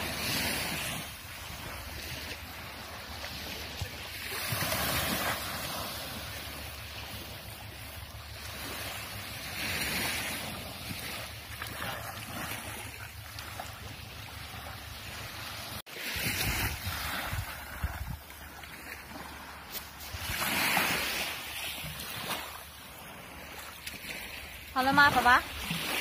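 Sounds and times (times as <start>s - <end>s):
small waves on sandy beach: 0.0s - 26.0s
wind rumbling on microphone: 15.2s - 23.5s.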